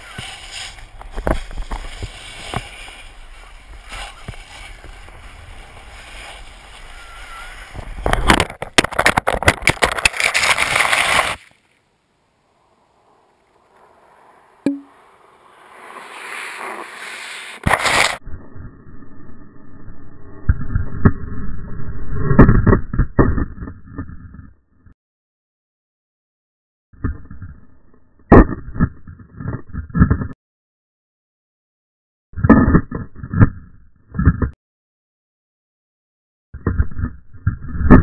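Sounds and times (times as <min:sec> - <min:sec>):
snowboard carving on snow: 0:00.0 - 0:08.4, 0:10.2 - 0:11.6, 0:12.5 - 0:18.2
snow crash scraping camera: 0:00.0 - 0:11.7, 0:12.5 - 0:18.2.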